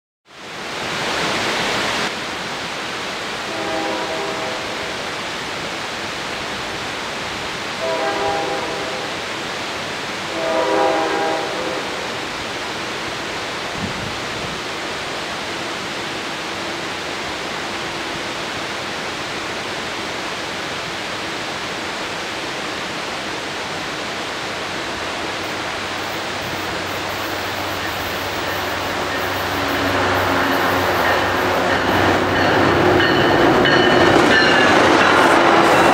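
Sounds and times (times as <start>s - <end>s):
low rumble of train: 0.4s - 35.9s
distant train horn: 3.4s - 5.0s, 7.8s - 9.2s, 10.3s - 12.3s, 24.8s - 35.9s
steady rushing noise: 11.4s - 35.9s.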